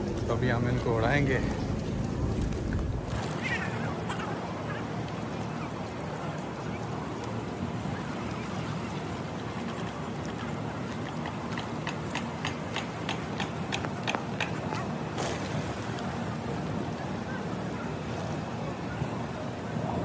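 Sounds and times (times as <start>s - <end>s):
outdoor hubbub: 0.0s - 20.0s
pigeon wing claps: 11.0s - 15.4s.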